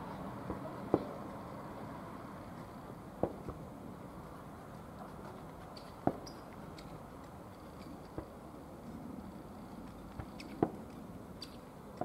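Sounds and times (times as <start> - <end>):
distant fireworks bangs: 0.4 - 1.2, 3.2 - 3.7.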